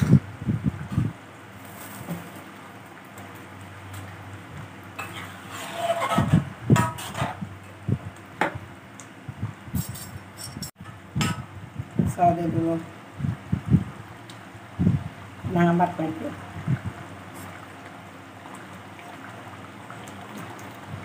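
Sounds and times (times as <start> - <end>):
metal ladle scraping a wok: 5.0 - 7.4.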